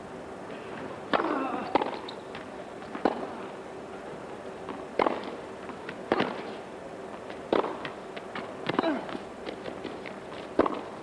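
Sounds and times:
tennis ball hits: 1.1 - 2.0, 2.9 - 3.4, 4.7 - 6.5, 7.5 - 8.0, 10.6 - 10.9.

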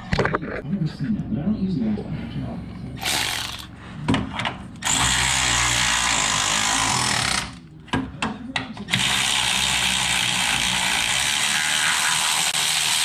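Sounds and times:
electric ratchet running: 3.0 - 3.7, 4.8 - 7.6, 8.9 - 13.0.

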